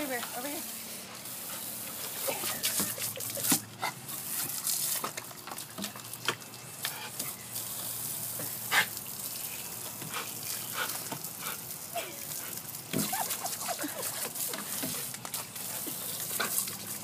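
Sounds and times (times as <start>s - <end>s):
running water hissing: 0.0s - 17.0s.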